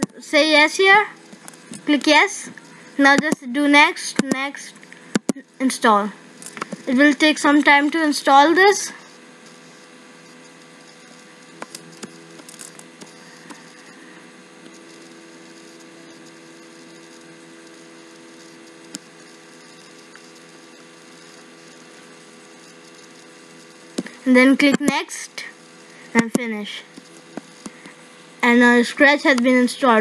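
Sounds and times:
electrical hum: 0.0 - 30.0.

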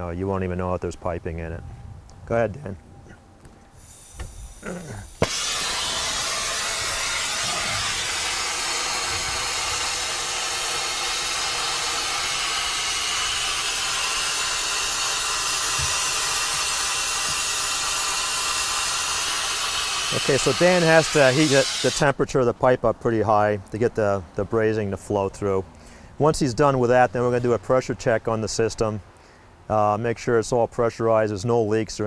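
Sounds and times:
torch flame hissing: 3.8 - 22.1
torch lighting pop: 4.1 - 4.4, 5.1 - 12.2.

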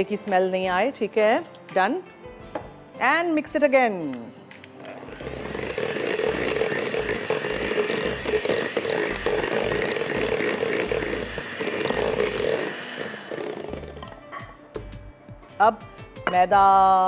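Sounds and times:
electric hand mixer running: 4.8 - 14.2.

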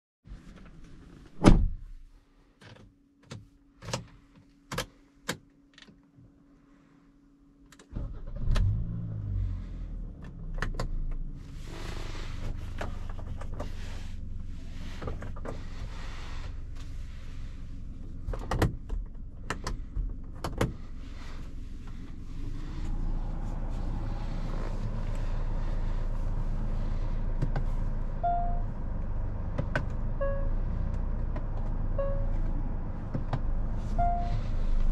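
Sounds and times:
car engine starting and idling: 7.7 - 34.9.

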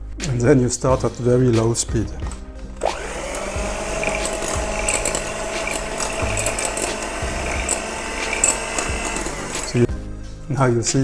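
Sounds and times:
electric hand mixer whining: 2.8 - 9.9.

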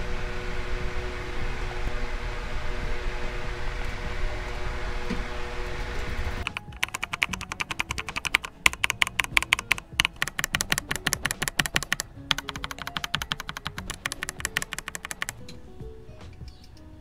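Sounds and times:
mechanical keyboard key clacks: 6.4 - 15.4.

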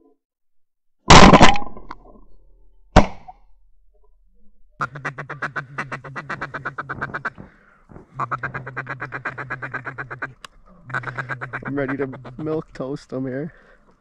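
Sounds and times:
duck call chatter: 4.8 - 13.0.

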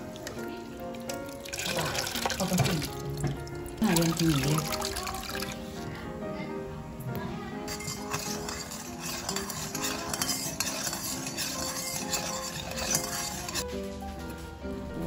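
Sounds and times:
metal spoon stirring in metal bowl: 0.0 - 5.9, 7.6 - 13.7.

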